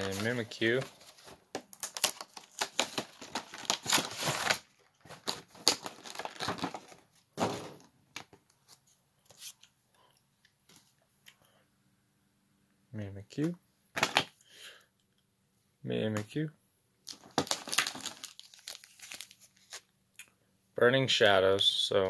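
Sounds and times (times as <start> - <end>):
plastic tray crinkling: 0.0 - 8.4, 17.1 - 19.8.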